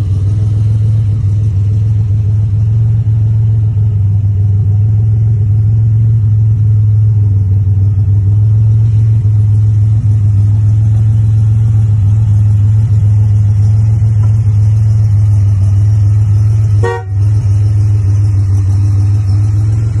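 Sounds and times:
car engine humming: 0:00.0 - 0:20.0
car horn toot: 0:16.8 - 0:17.4.

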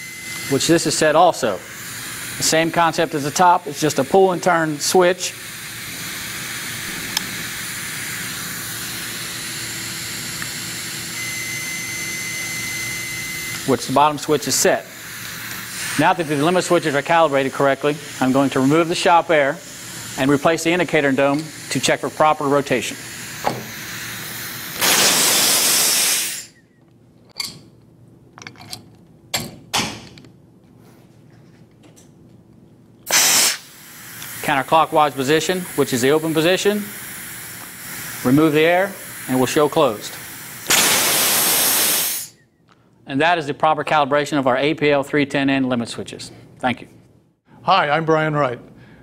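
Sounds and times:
compressed air hissing: 0:00.0 - 0:11.1, 0:12.6 - 0:26.6, 0:33.1 - 0:42.4
multimeter continuity beep: 0:11.1 - 0:13.6
small parts clicking and knocking: 0:26.8 - 0:30.4.

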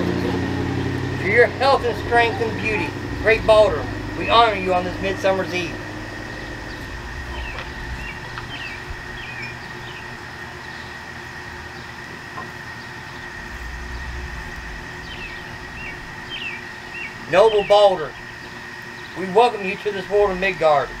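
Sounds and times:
low rumble: 0:00.0 - 0:10.6, 0:12.9 - 0:19.2
high whine: 0:00.0 - 0:21.0
bird chirps: 0:06.2 - 0:11.0, 0:12.8 - 0:19.2.

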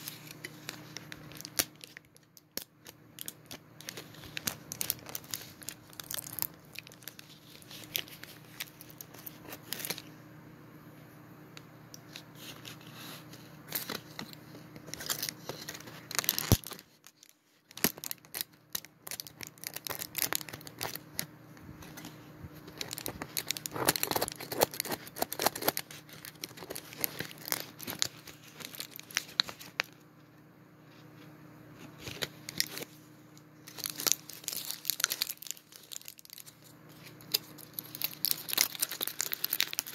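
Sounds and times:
wrappers crinkling: 0:00.0 - 0:10.1, 0:13.6 - 0:30.0, 0:33.5 - 0:39.9
faint steady hum: 0:00.0 - 0:39.9.

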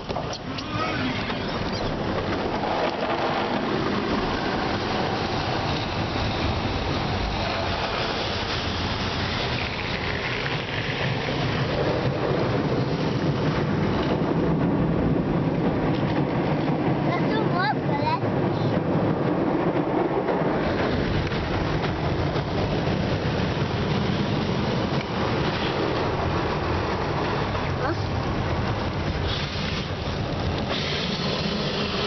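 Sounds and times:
car wash brushes scrubbing: 0:29.2 - 0:32.0.

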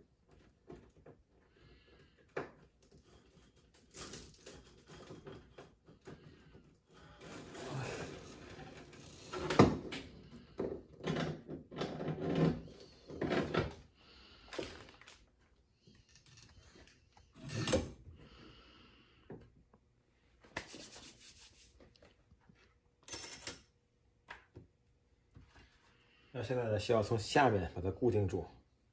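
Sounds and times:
faucet hoses rubbing: 0:20.6 - 0:21.8.

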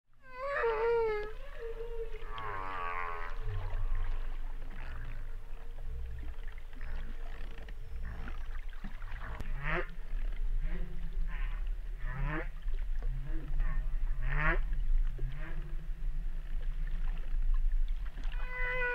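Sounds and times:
low steady rumble: 0:00.1 - 0:18.9
whale call sweeping up and down: 0:00.2 - 0:05.2, 0:18.3 - 0:18.9
long held whale call: 0:00.2 - 0:07.2, 0:18.2 - 0:18.9
warbling higher whale calls: 0:00.2 - 0:10.0, 0:18.2 - 0:18.9.

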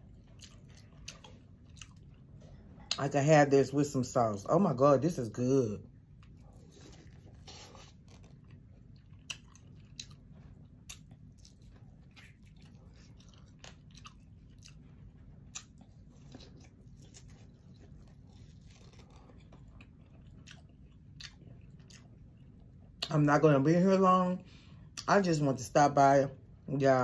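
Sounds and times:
person chewing: 0:00.0 - 0:03.0, 0:05.8 - 0:23.2.

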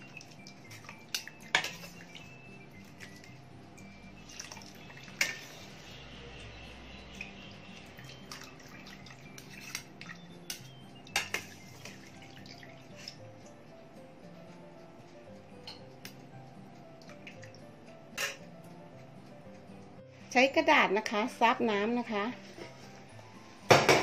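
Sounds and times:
water dripping and splashing: 0:00.0 - 0:05.5, 0:07.1 - 0:10.3, 0:11.1 - 0:13.6, 0:17.0 - 0:17.6
faint background music: 0:00.0 - 0:24.0
strainer clinking against pot: 0:01.1 - 0:01.9.

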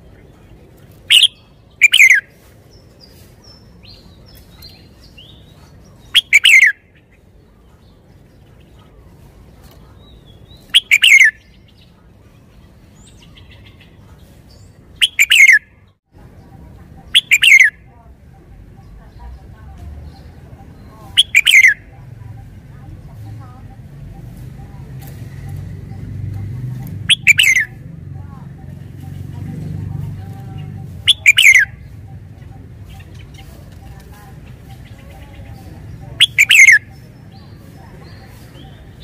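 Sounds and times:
faint bird chirps: 0:09.6 - 0:27.8, 0:30.2 - 0:39.0.

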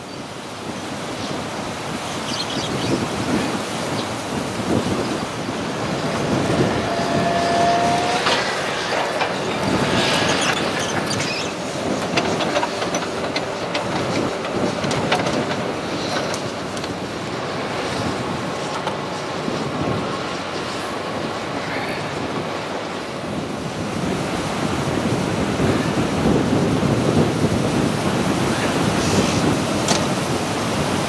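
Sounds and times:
surf: 0:00.0 - 0:31.0
wind: 0:00.0 - 0:31.0
excavator running: 0:04.2 - 0:25.2.

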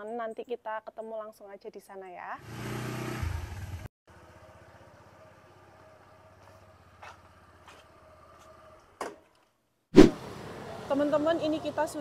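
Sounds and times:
faint vehicle engine running: 0:02.4 - 0:09.0, 0:10.1 - 0:12.0.

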